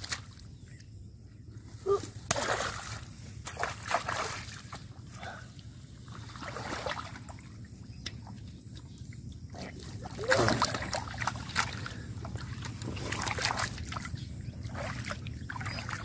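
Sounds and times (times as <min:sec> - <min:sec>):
feet splashing in shallow water: 0:02.2 - 0:16.0.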